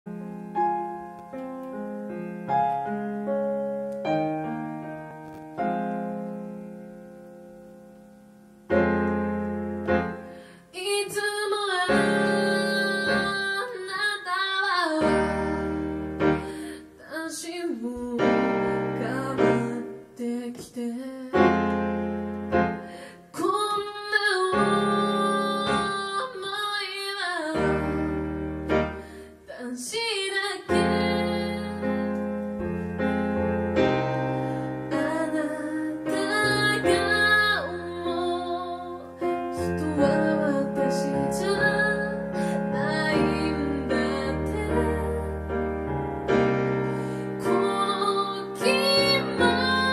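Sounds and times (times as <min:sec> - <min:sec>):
keyboard playing piano chords: 0:00.1 - 0:10.7, 0:11.8 - 0:14.0, 0:14.9 - 0:17.0, 0:18.0 - 0:20.2, 0:21.4 - 0:26.4, 0:27.6 - 0:29.3, 0:30.7 - 0:49.9
woman singing: 0:10.6 - 0:22.0, 0:22.7 - 0:32.5, 0:34.8 - 0:45.7, 0:47.3 - 0:49.9.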